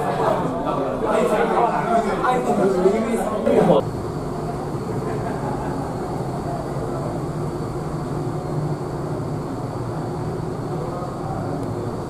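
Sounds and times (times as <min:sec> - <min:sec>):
ferry engine drone: 0:03.7 - 0:12.0.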